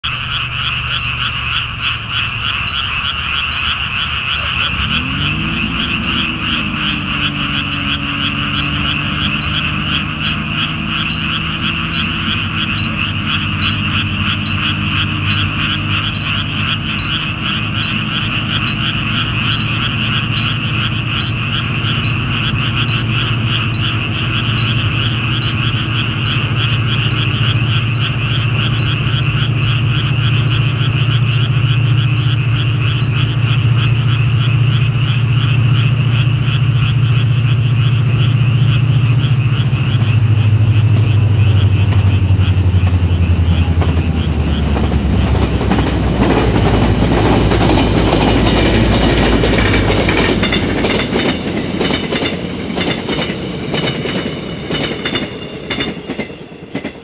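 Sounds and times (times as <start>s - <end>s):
frogs croaking: 0.0s - 57.0s
low engine drone: 0.0s - 57.0s.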